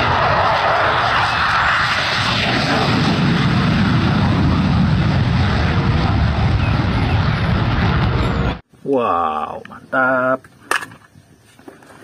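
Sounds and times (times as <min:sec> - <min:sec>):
jet engine roar: 0:00.0 - 0:08.6.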